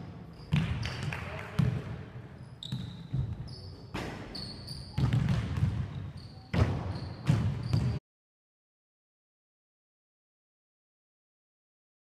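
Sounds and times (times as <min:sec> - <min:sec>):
sneakers squeaking on court: 0:00.2 - 0:01.8, 0:02.4 - 0:08.0
basketballs bouncing on wooden floor: 0:04.9 - 0:08.0.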